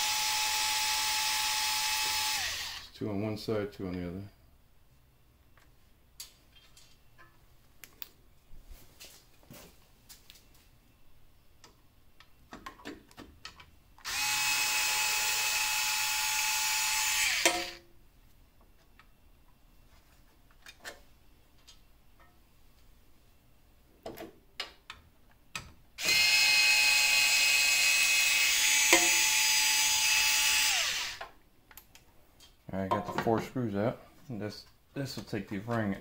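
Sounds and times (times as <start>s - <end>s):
power screwdriver whine: 0.0s - 2.9s, 14.0s - 17.8s, 26.0s - 31.3s.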